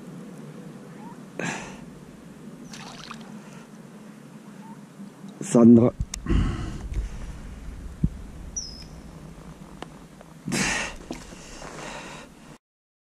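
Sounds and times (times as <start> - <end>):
fish splashing in water: 2.6 - 3.4
low handling rumble: 5.8 - 12.6.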